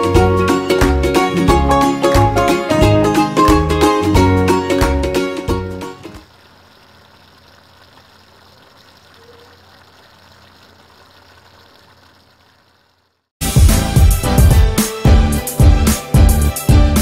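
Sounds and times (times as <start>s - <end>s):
loud music: 0.0s - 6.0s, 13.4s - 17.0s
pan simmering hiss: 6.2s - 13.3s.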